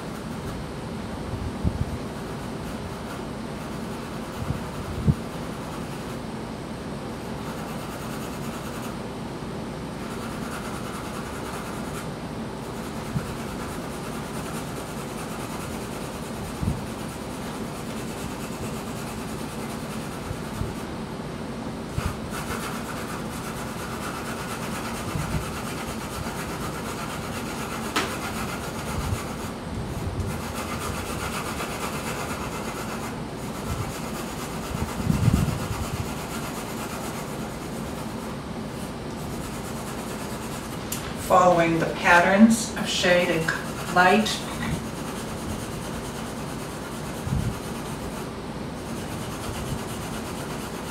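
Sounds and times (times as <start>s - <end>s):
pencil scratching on paper: 2.2s - 6.2s, 7.2s - 9.0s, 10.0s - 12.0s, 12.6s - 20.9s, 21.9s - 29.6s, 30.3s - 50.9s
pencil click against drawing board: 27.9s - 28.2s.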